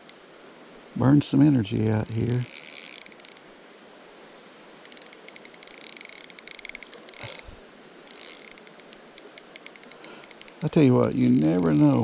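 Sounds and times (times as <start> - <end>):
fishing reel gears ticking: 1.9 - 3.4, 4.8 - 12.0.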